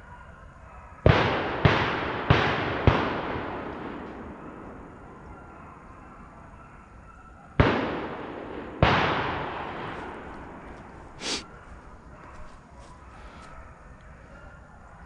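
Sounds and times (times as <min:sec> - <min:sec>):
shotgun blasts with echo: 0:01.0 - 0:06.0, 0:07.6 - 0:11.4.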